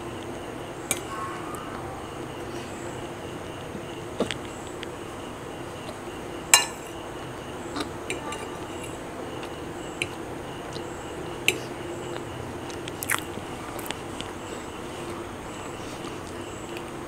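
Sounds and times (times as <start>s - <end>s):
fork clinking against a plate: 6.5s - 6.9s.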